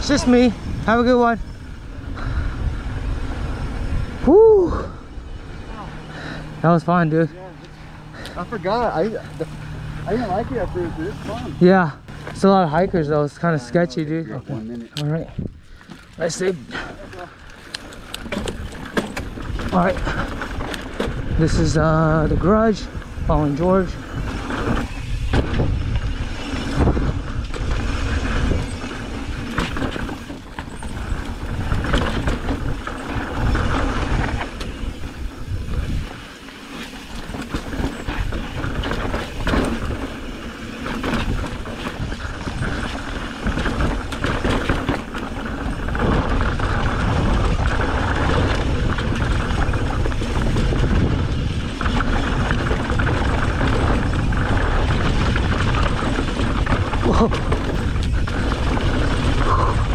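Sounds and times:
wind buffeting microphone: 0:00.0 - 0:13.5, 0:14.1 - 0:59.9
bike rattling: 0:00.0 - 0:59.9
tyres crunching over dirt: 0:14.9 - 0:59.9.

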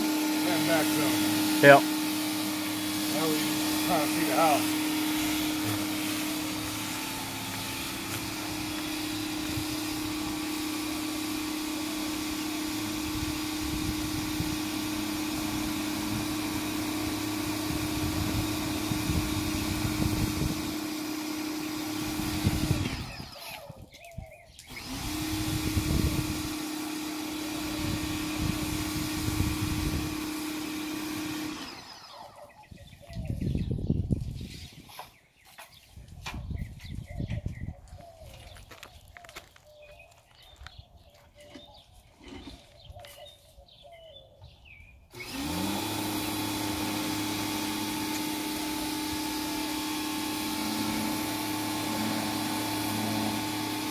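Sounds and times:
pressure washer running: 0:00.0 - 0:23.8, 0:24.6 - 0:32.6, 0:45.1 - 0:53.9
water jet spraying brick wall: 0:00.0 - 0:24.0, 0:24.6 - 0:32.5, 0:45.1 - 0:53.9.

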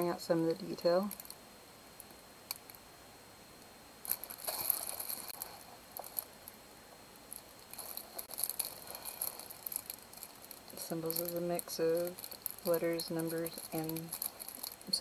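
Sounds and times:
plastic packaging crinkling: 0:00.5 - 0:01.4, 0:04.1 - 0:06.5, 0:07.3 - 0:15.0.

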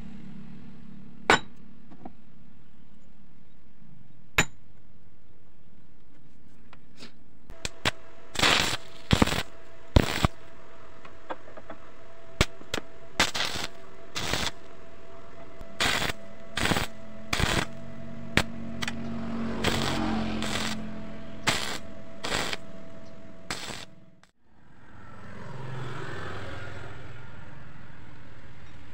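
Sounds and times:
welding arc crackling: 0:07.5 - 0:10.6, 0:12.4 - 0:14.8, 0:15.6 - 0:19.0, 0:19.6 - 0:22.9, 0:23.5 - 0:24.3
steady hum: 0:07.5 - 0:24.4.

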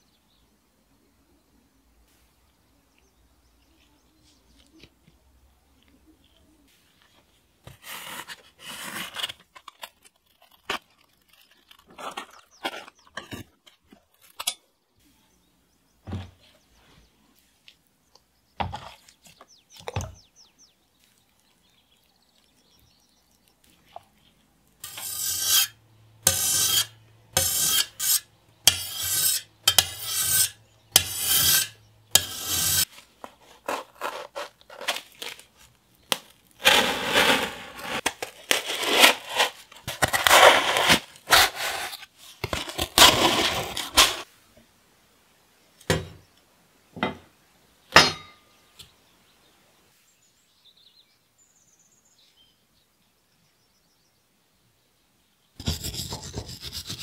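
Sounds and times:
blade cutting cardboard: 0:07.7 - 0:13.4, 0:24.8 - 0:35.4, 0:36.1 - 0:44.3, 0:55.6 - 0:57.0
rasping strokes: 0:24.8 - 0:35.0, 0:55.6 - 0:57.0.

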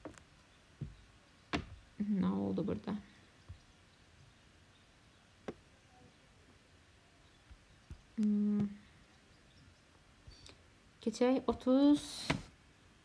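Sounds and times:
person humming hesitation: 0:08.2 - 0:08.9.

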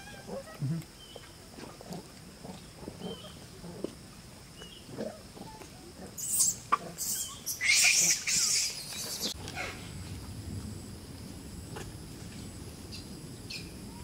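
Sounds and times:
monkeys screaming: 0:06.2 - 0:09.8.

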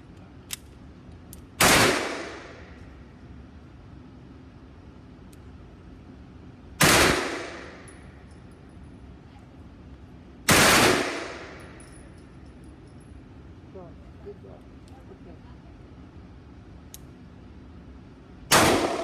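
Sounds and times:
gunshots echoing indoors: 0:01.6 - 0:02.7, 0:06.8 - 0:07.9, 0:10.5 - 0:11.6, 0:18.5 - 0:19.0.

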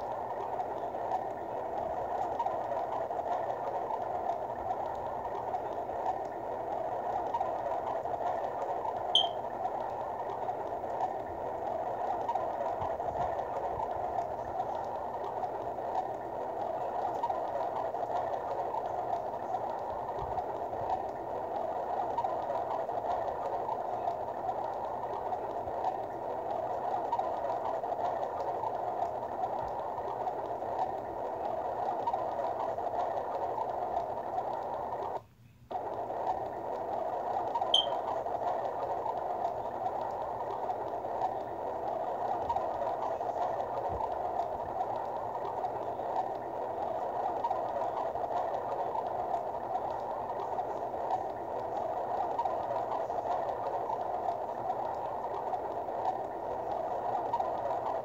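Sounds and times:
short high chirp: 0:09.2 - 0:09.4, 0:37.8 - 0:38.0.

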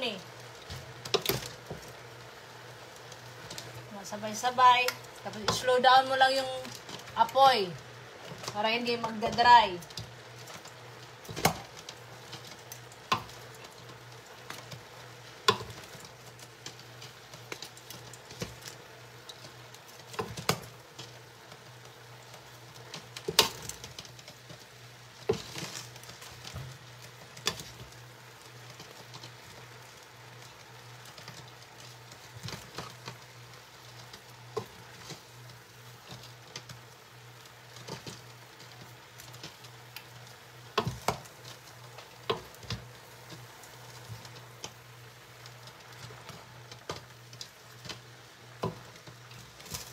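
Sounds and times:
faint sizzle: 0:00.0 - 0:49.9.

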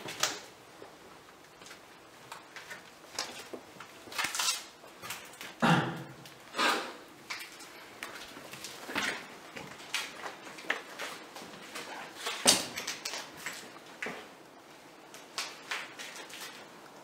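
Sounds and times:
footsteps on debris-strewn tiles: 0:07.2 - 0:14.3.

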